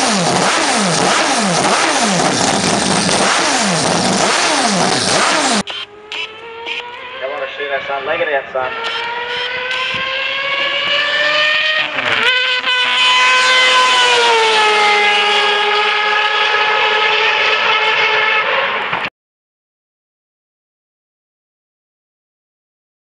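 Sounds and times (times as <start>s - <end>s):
race car engine screaming past: 3.3s - 19.0s.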